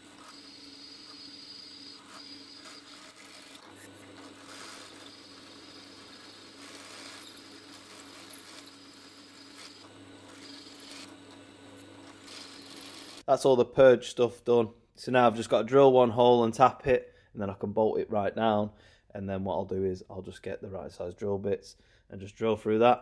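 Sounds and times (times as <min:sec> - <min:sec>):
drill bit scraping metal: 0:00.0 - 0:13.2
drill motor hum: 0:00.0 - 0:13.2.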